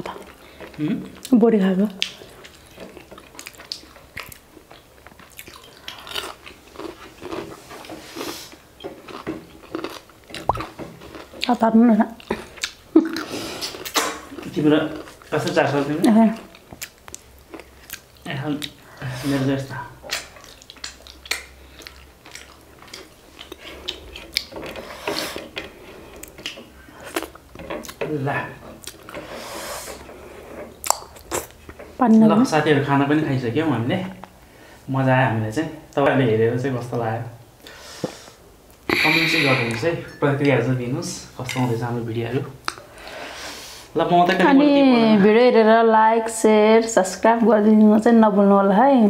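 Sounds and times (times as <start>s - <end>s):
people chewing: 0.0s - 32.4s, 42.6s - 43.9s
food crunch: 2.0s - 11.6s
wet mouth clicks and lip smacks: 10.4s - 10.8s, 20.1s - 24.5s, 30.8s - 31.5s, 42.6s - 42.8s.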